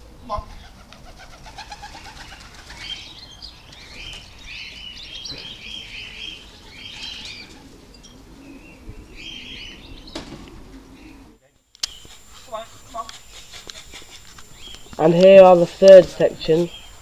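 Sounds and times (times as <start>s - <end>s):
pigeon wings flapping: 0.6s - 3.0s.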